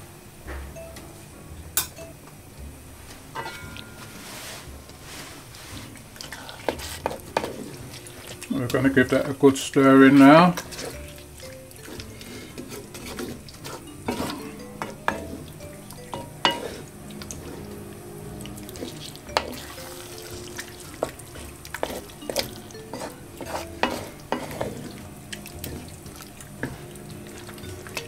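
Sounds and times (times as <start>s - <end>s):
wooden spoon stirring thick stew: 4.0s - 28.0s
spoon knocking and scraping pot: 6.6s - 9.3s, 10.1s - 17.8s, 18.6s - 28.0s.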